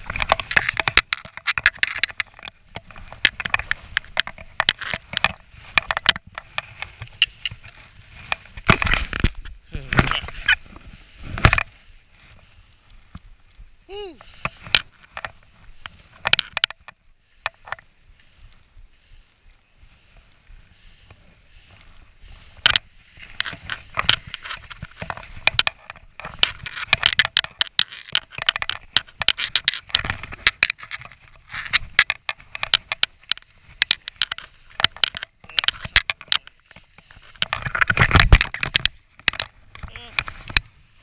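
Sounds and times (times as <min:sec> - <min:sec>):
skis scraping through snow: 0:10.2 - 0:14.4, 0:17.8 - 0:25.4.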